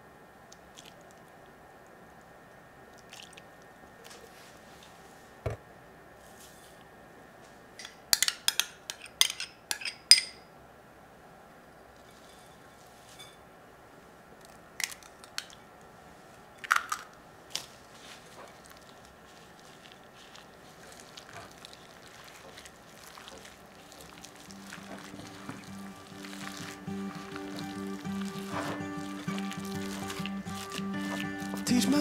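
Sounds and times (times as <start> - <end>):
faint handling sounds: 3.0 - 8.0, 11.9 - 13.5, 14.4 - 32.0
clicks and crunches in glass bowl: 18.4 - 31.9.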